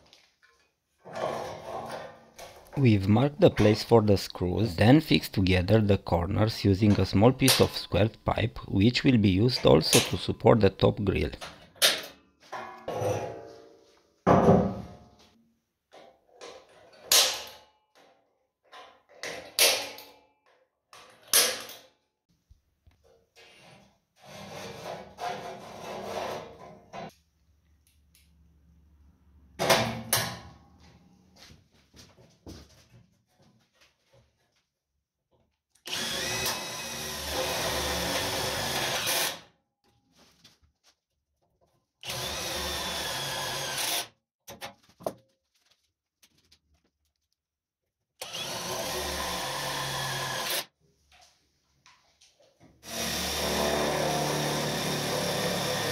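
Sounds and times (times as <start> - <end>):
sheet metal clanks and scrapes: 1.0 - 2.8, 23.4 - 27.2
electric drill running: 35.9 - 39.4, 42.0 - 44.1, 48.2 - 50.7, 52.8 - 55.9.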